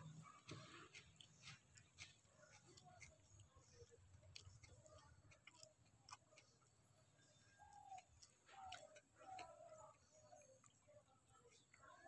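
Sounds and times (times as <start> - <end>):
faint bird calls: 7.1 - 12.0.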